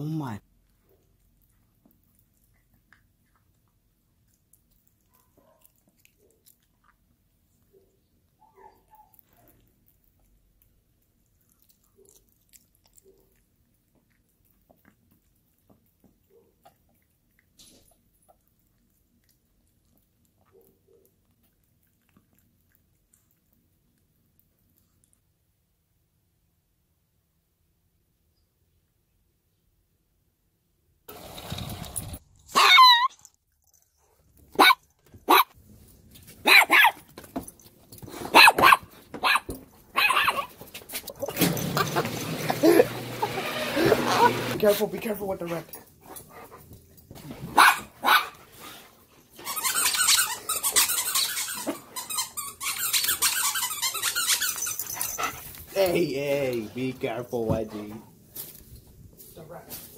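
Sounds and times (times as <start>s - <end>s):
dog chewing and licking: 0.5s - 25.5s
small dog barking: 5.0s - 6.4s, 7.7s - 9.6s, 32.5s - 33.1s, 34.6s - 35.6s, 36.4s - 37.0s, 38.3s - 40.6s, 47.5s - 48.4s
small dog whining: 32.5s - 33.3s, 42.5s - 44.6s.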